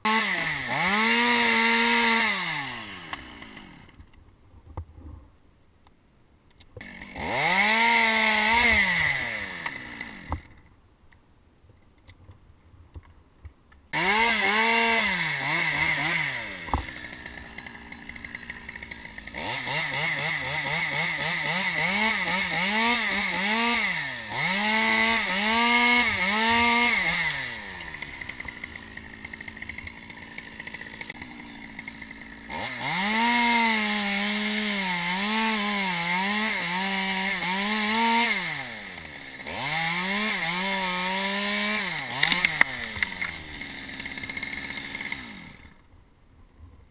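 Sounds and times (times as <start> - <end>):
chainsaw cutting limbs: 0.0 - 4.1, 6.8 - 10.7, 13.9 - 45.9
sharp click: 42.2 - 43.4.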